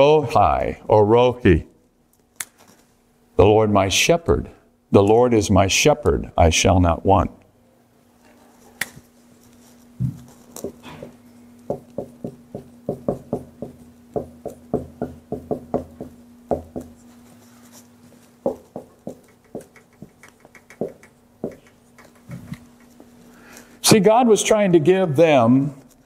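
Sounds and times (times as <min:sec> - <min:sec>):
faint hum: 0:00.0 - 0:26.0
marker squeaking on whiteboard: 0:19.2 - 0:23.0.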